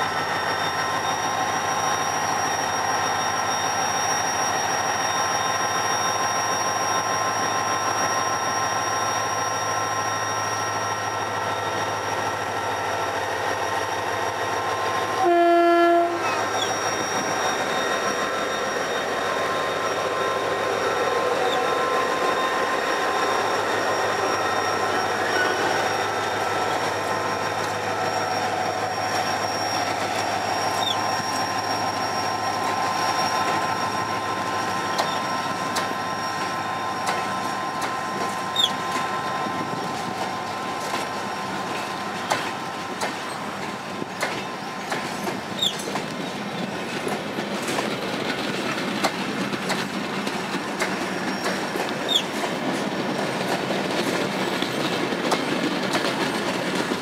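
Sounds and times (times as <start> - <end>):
high wheel squeals: 0.0 - 56.9
diesel locomotive engine: 0.0 - 57.0
wheels clicking over rail joints: 34.9 - 35.9, 44.2 - 52.8.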